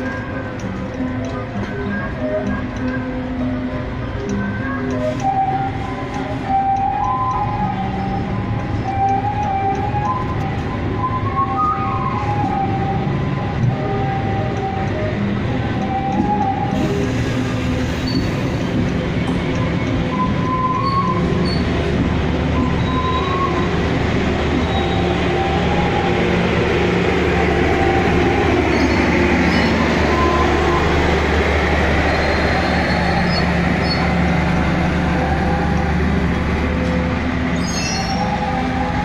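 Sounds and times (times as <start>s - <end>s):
train wheels rumbling on rail: 0.0s - 39.0s
high wheel squeals: 15.9s - 21.9s, 22.5s - 39.0s.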